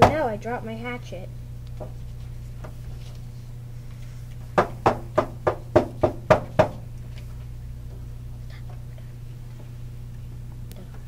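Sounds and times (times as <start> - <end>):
sharp knocks on hard surface: 4.6 - 6.8.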